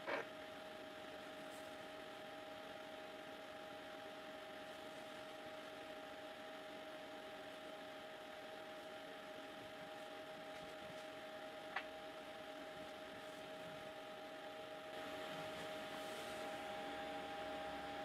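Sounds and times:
thin constant whine: 0:00.0 - 0:18.0.

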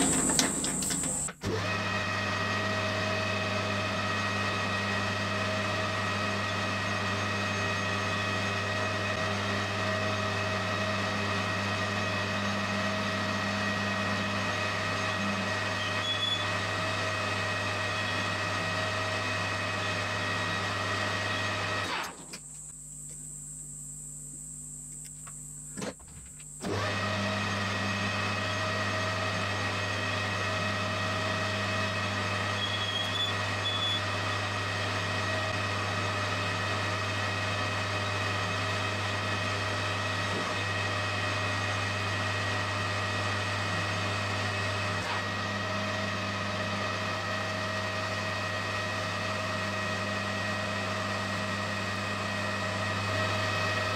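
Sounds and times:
metal lathe humming: 0:00.0 - 0:01.3
thin high whine: 0:00.0 - 0:01.3.

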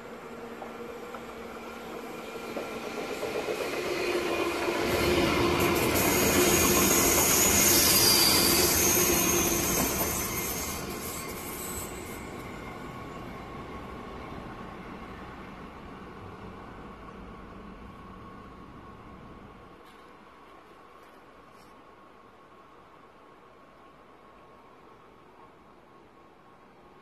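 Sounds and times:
train wheels rolling on rails: 0:00.0 - 0:21.1.

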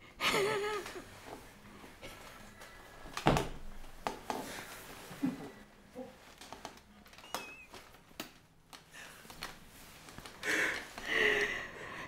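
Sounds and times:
woman laughing breathily: 0:10.4 - 0:12.0.

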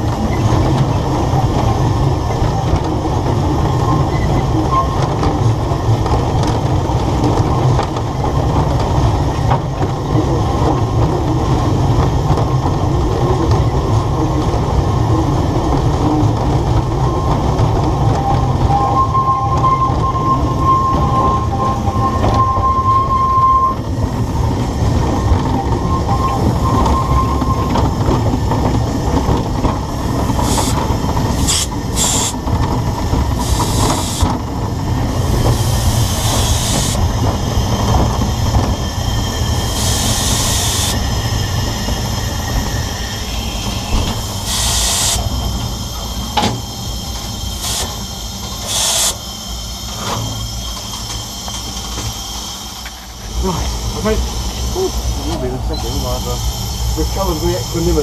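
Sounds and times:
steam train rumbling: 0:00.0 - 0:58.0
high wheel squeal: 0:18.2 - 0:24.0, 0:25.2 - 0:28.0, 0:30.0 - 0:32.4, 0:33.4 - 0:34.4, 0:35.1 - 0:53.6, 0:54.3 - 0:58.0
steam hissing: 0:29.9 - 0:32.5, 0:33.2 - 0:34.4, 0:35.0 - 0:58.0.

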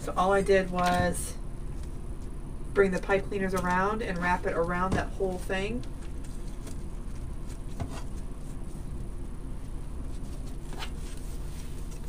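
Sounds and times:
low room hum: 0:00.0 - 0:12.0
hands rustling materials: 0:04.3 - 0:12.0.

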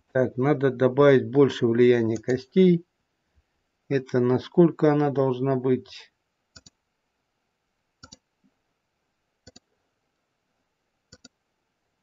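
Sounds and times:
computer mouse clicks: 0:06.5 - 0:06.8, 0:08.0 - 0:08.3, 0:09.4 - 0:09.7, 0:11.1 - 0:11.4.

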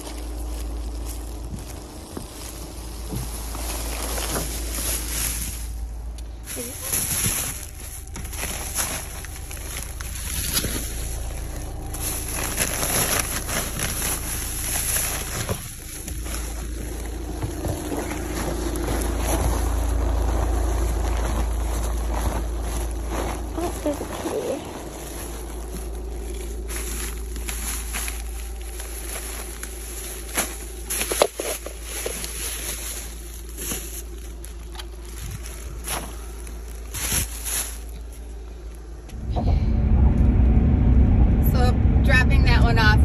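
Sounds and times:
footsteps: 0:00.0 - 0:31.7, 0:39.0 - 0:43.0
plastic bags rustling: 0:00.0 - 0:39.3.

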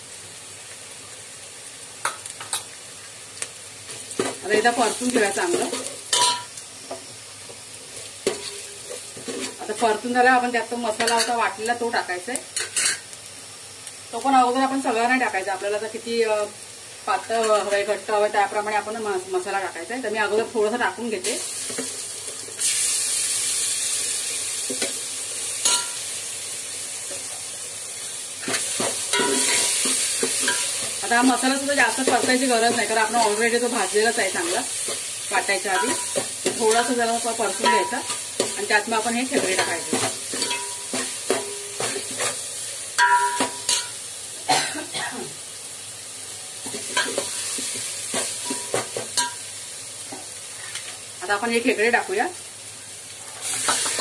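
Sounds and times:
masala sizzling in oil: 0:00.0 - 0:54.0
steel ladle clinking on pot: 0:39.6 - 0:41.4, 0:43.0 - 0:43.9.

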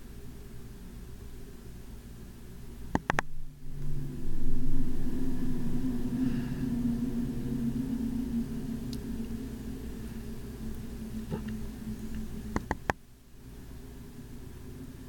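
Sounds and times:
mechanical hum and rumble: 0:00.0 - 0:15.0
quick clicks: 0:03.0 - 0:03.3, 0:12.5 - 0:13.0.

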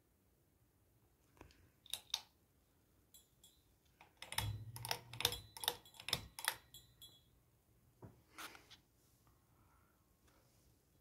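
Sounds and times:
pull chain clicking and rattling: 0:04.0 - 0:07.2.

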